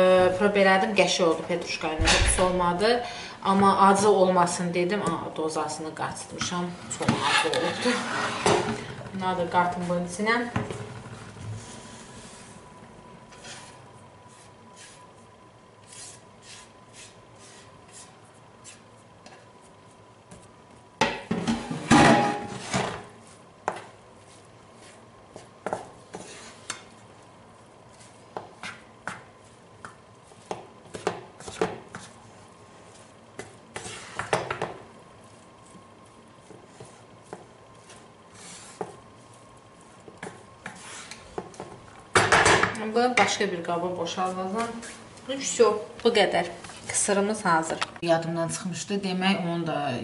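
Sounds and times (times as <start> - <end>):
spatula scraping frying pan: 7.0 - 8.9, 26.1 - 26.9, 33.7 - 34.4, 36.5 - 41.3.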